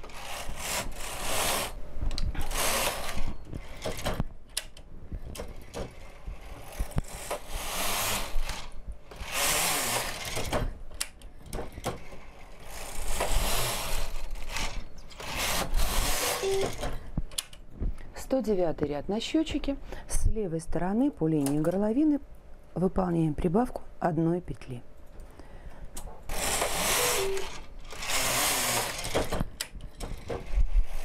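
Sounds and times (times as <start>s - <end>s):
knitting machine carriage rasping: 0.0s - 1.8s, 2.4s - 4.2s, 5.6s - 10.7s, 11.7s - 16.8s, 26.3s - 31.0s
knitting machine clicks: 12.8s - 16.8s, 26.3s - 30.6s.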